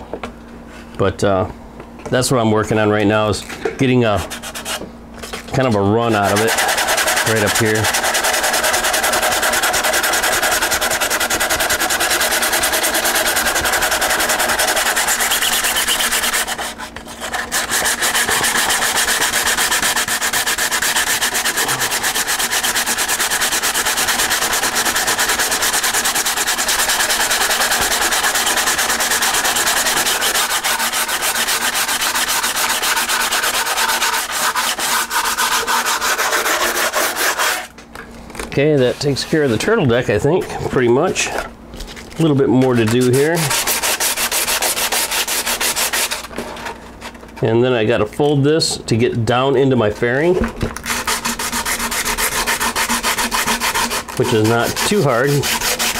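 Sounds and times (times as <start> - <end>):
sandpaper rasping on resin: 4.2 - 37.7, 42.2 - 46.3, 50.8 - 55.9.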